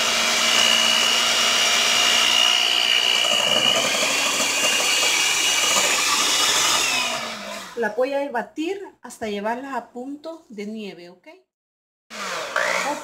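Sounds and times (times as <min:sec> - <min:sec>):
beaters whipping egg whites: 0:00.0 - 0:07.8, 0:12.2 - 0:13.0
electric stand mixer whining: 0:00.0 - 0:07.8, 0:12.1 - 0:13.0.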